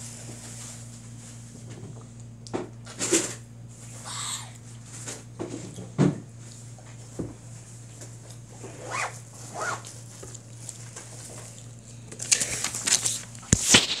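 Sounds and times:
steady low hum: 0.0s - 14.0s
plastic bottle crinkling: 12.2s - 14.0s.

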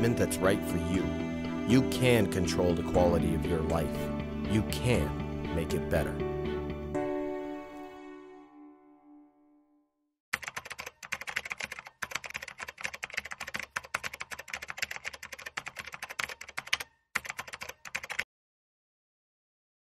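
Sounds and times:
soft background music: 0.0s - 9.4s
computer keyboard typing: 10.4s - 18.3s.

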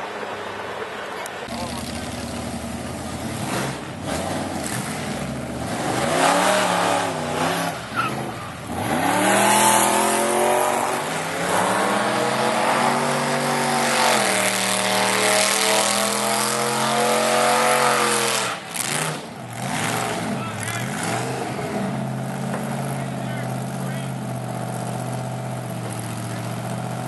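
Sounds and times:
tyres spinning in a burnout: 0.1s - 24.1s
supercharged engine revving: 1.5s - 27.0s.

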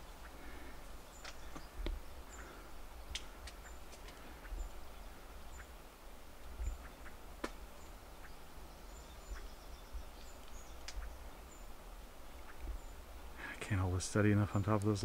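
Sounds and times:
small bird chirping: 0.0s - 13.1s
wind rumble on microphone: 6.4s - 7.1s.

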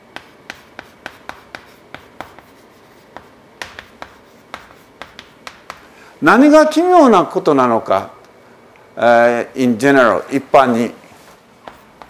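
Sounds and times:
chalk tapping on blackboard: 0.0s - 5.9s, 11.6s - 12.0s.

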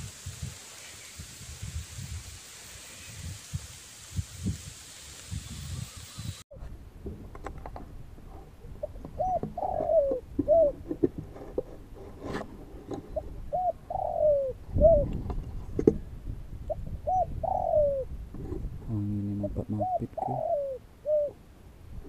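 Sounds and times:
doves cooing: 8.2s - 11.7s, 12.8s - 15.2s, 16.7s - 21.4s.

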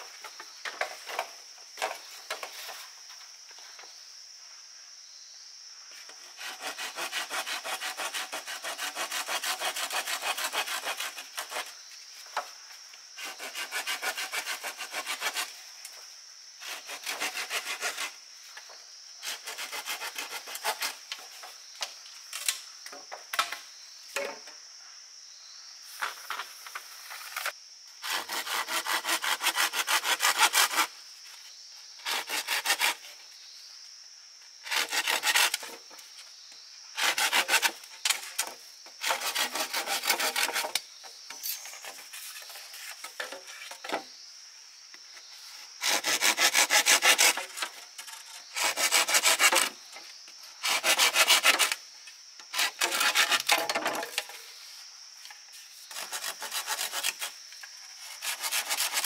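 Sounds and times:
blade sawing bamboo: 6.2s - 11.8s, 13.2s - 15.6s, 16.6s - 18.2s, 19.2s - 21.1s, 28.0s - 30.9s, 32.0s - 33.1s, 34.6s - 35.8s, 37.0s - 40.8s, 45.8s - 49.8s, 50.6s - 51.8s, 52.5s - 54.3s, 55.9s - 57.4s, 58.0s - 59.0s.

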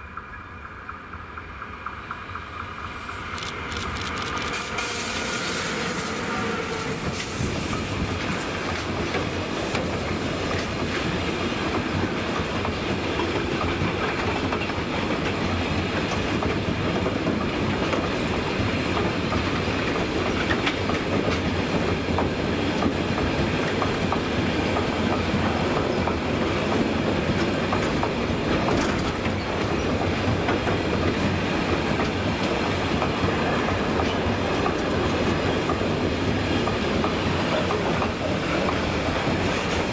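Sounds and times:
freight train wheels rumbling: 0.0s - 39.9s
locomotive whine: 1.0s - 9.4s.

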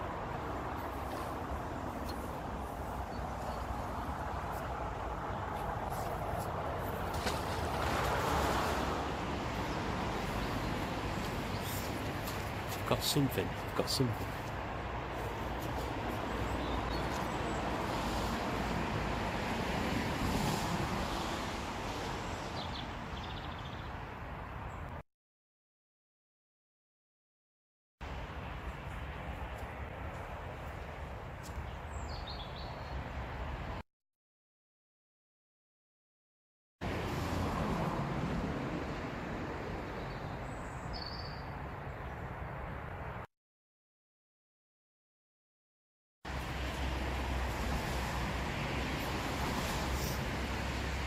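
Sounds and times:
road traffic hum: 0.0s - 25.0s, 28.0s - 33.8s, 36.8s - 43.3s, 46.3s - 51.0s
outdoor background rumble and hiss: 46.3s - 51.0s.

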